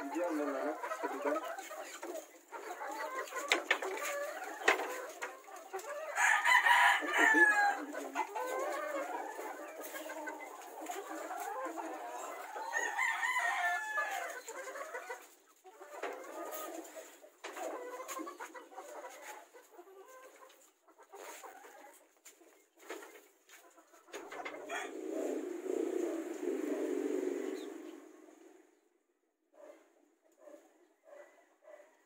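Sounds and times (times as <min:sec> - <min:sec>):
chickens clucking: 0:00.0 - 0:28.6
rooster crowing: 0:06.2 - 0:07.9, 0:24.7 - 0:25.0.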